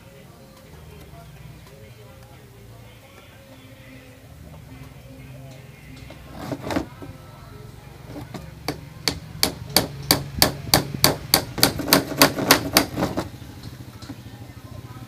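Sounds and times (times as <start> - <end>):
hammer striking a nail: 8.6 - 13.3.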